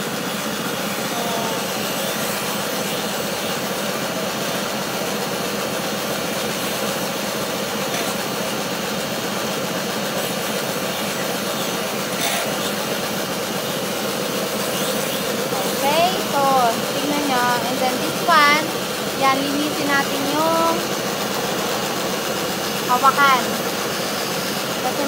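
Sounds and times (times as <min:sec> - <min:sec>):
bench grinder running: 0:00.0 - 0:25.0
metal scraping on grinder wheel: 0:06.3 - 0:08.6, 0:10.0 - 0:18.6.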